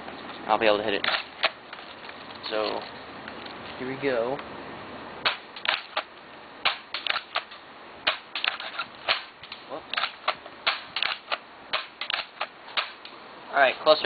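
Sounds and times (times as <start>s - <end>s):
spring airsoft shotgun racked and fired: 1.0s - 1.6s, 5.3s - 6.1s, 6.7s - 13.0s.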